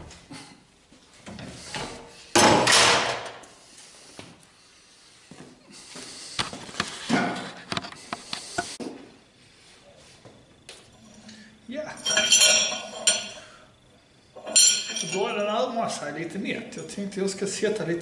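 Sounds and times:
metal pipe clattering on wood: 0:12.0 - 0:13.6, 0:14.4 - 0:15.4.

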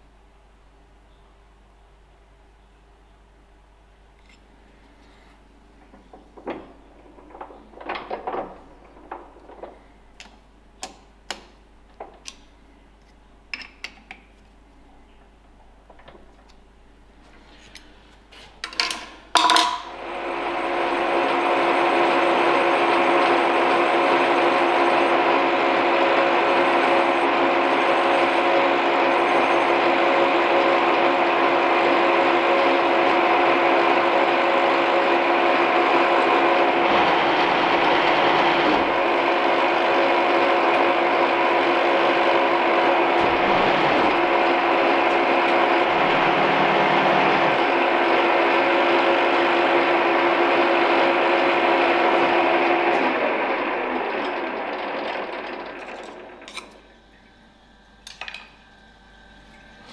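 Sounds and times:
milling machine spindle whine: 0:20.0 - 0:57.9.

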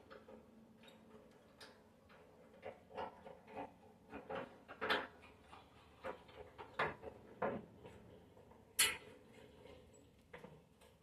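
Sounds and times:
small metal clicks and scrapes: 0:00.0 - 0:07.2.

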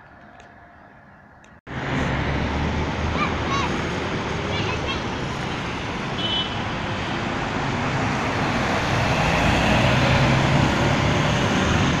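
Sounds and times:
road traffic noise: 0:00.0 - 0:12.0
diesel bus engine pulling away: 0:06.8 - 0:12.0.

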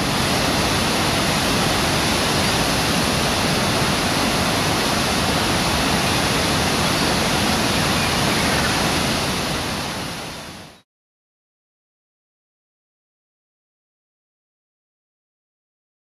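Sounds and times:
waterfall and river rushing: 0:00.0 - 0:10.8.

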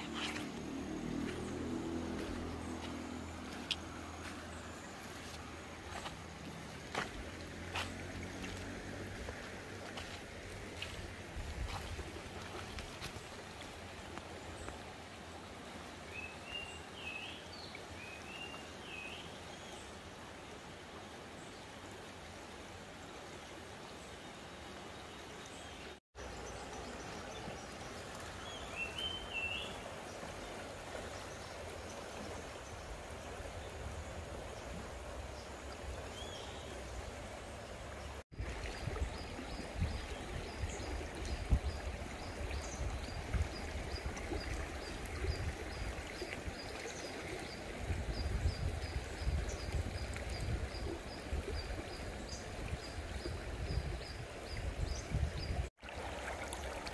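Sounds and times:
river running over stones: 0:00.0 - 0:56.9.

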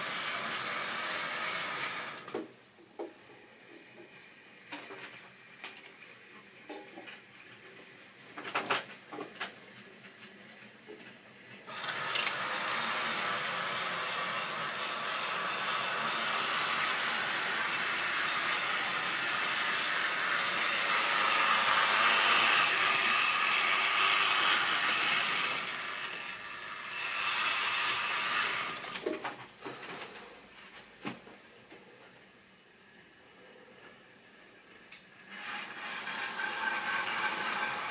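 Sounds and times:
model train motor whirring: 0:00.0 - 0:02.4, 0:11.6 - 0:29.2, 0:34.7 - 0:37.9.

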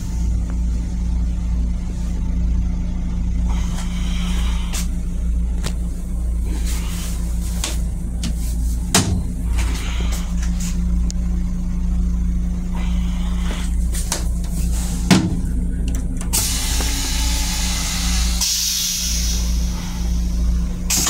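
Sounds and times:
train low rumble and hum: 0:00.0 - 0:21.0.

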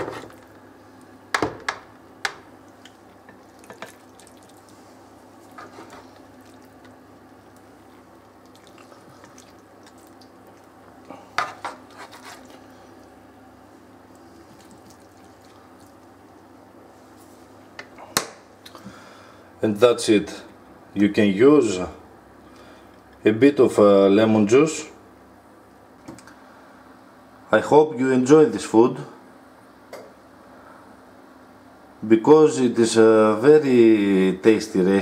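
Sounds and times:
quiet steady hum: 0:00.0 - 0:35.0
plastic spatula scraping a pan: 0:05.5 - 0:06.2, 0:11.4 - 0:12.6.

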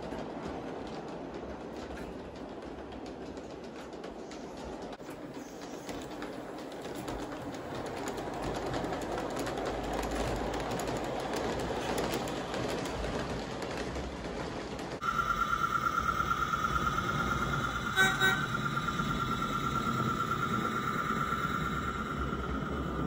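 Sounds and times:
model train rumbling: 0:00.0 - 0:23.0
high pulsing whine: 0:15.0 - 0:23.0.

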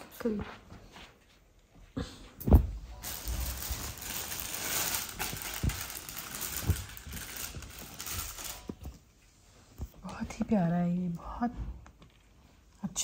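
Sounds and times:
thump: 0:02.4 - 0:02.8
plastic packaging rustling: 0:03.0 - 0:09.1.

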